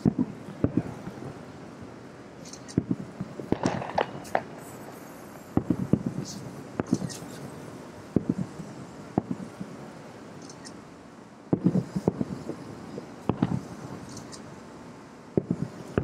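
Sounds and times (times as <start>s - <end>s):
distant fireworks booming: 0.0s - 2.0s, 2.8s - 10.0s, 11.5s - 14.1s, 15.3s - 16.0s.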